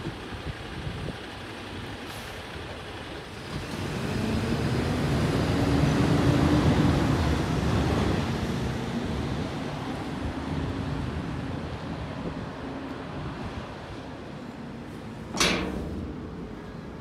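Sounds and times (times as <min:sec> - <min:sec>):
garbage truck accelerating away: 0:02.1 - 0:09.3.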